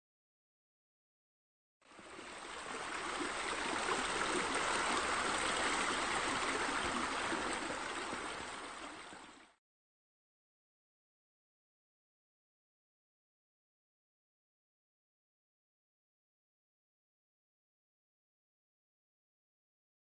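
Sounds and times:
running splashing water: 2.0s - 9.6s.

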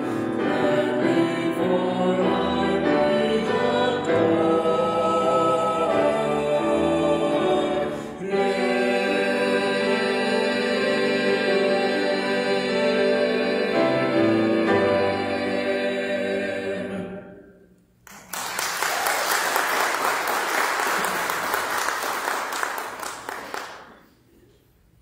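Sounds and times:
vocal trio holding a chord: 0.0s - 17.6s
audience applauding: 18.1s - 24.2s.

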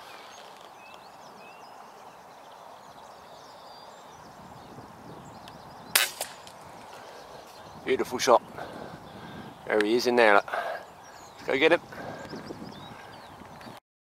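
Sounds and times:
outdoor hush: 0.0s - 13.8s
air rifle shot crack: 5.9s - 6.9s.

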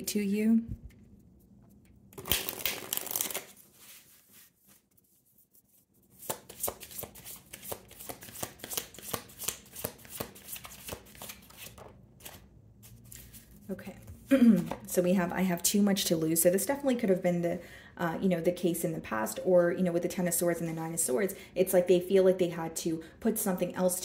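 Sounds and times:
cards shuffling: 1.7s - 5.1s, 6.1s - 14.9s
card rustle: 2.2s - 5.1s, 6.2s - 13.7s.

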